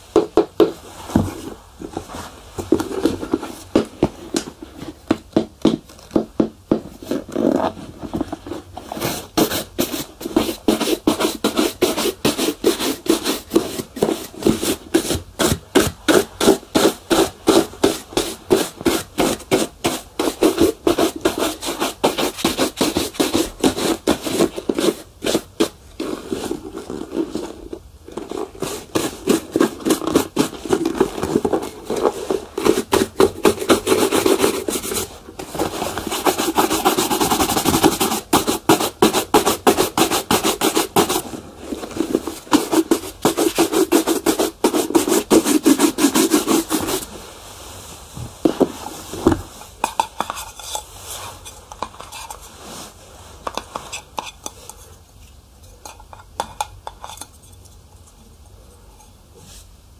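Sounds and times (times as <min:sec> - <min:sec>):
shoe polishing rubbing strokes: 0:08.6 - 0:27.6, 0:28.2 - 0:41.3, 0:41.9 - 0:54.1.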